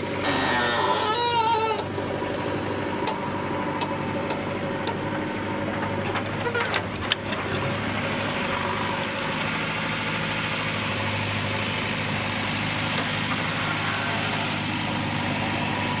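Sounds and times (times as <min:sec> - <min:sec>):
tractor engine running: 0:00.0 - 0:16.0.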